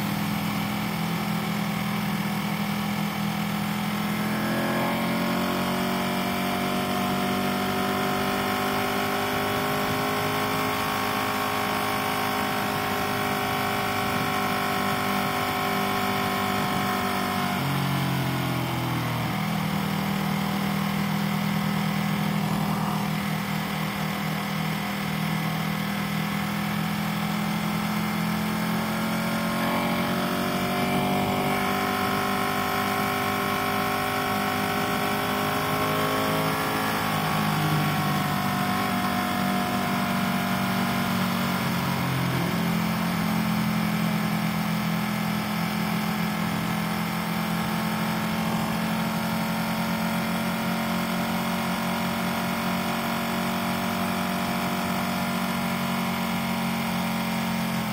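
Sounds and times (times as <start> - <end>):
higher engine note: 0.0 - 48.8
motorcycle engine cruising: 0.0 - 57.9
wind and road noise: 26.1 - 44.2.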